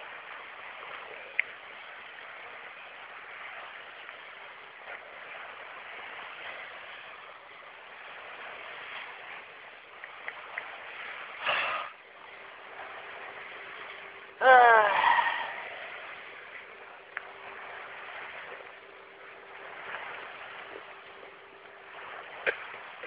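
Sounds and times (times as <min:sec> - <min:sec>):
flowing water rushing: 0:00.0 - 0:23.0
faint clicks: 0:01.3 - 0:01.6.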